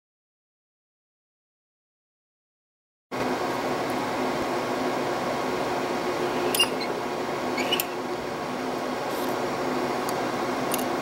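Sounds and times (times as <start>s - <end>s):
steady fan-like hum: 3.1s - 11.0s.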